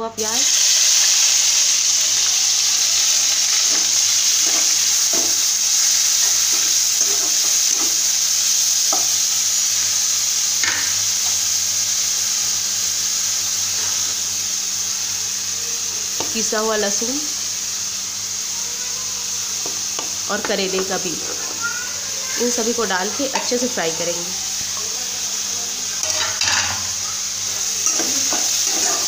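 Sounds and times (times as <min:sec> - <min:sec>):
onion sizzling in oil: 0:00.0 - 0:29.0
spatula scraping pan: 0:27.5 - 0:29.0.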